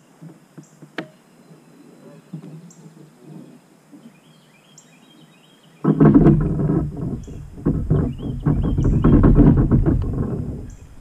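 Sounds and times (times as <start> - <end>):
faint bird chirps: 0.7 - 5.9
anchor pole rattling clatter: 5.8 - 11.0.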